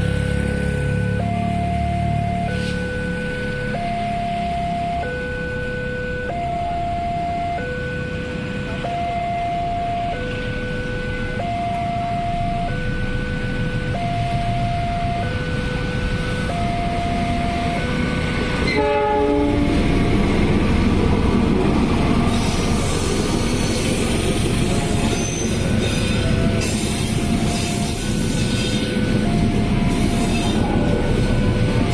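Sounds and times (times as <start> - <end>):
level crossing two-tone alarm: 0.0 - 20.6, 22.3 - 31.9
train rumbling past: 14.4 - 31.9
train horn blast: 18.6 - 19.9.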